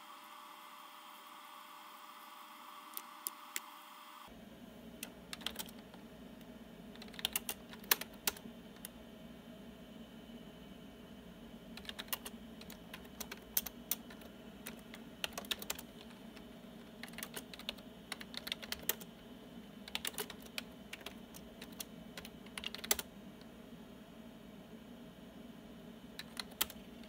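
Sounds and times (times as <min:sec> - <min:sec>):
typing on keyboard: 0:05.0 - 0:06.0, 0:06.9 - 0:08.9, 0:11.8 - 0:19.1, 0:19.8 - 0:23.1, 0:26.2 - 0:27.0.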